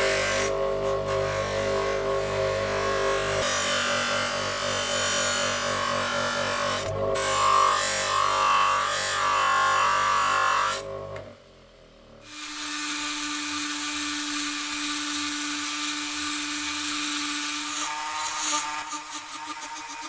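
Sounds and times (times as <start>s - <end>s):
rotary tool grinding metal: 12.3s - 20.0s.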